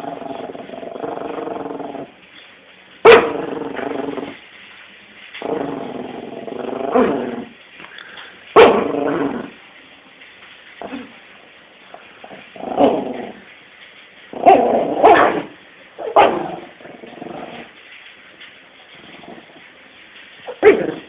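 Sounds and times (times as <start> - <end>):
small dog barking and growling: 3.0 - 4.4, 5.4 - 7.5, 8.6 - 9.6, 14.3 - 17.7, 20.4 - 21.0.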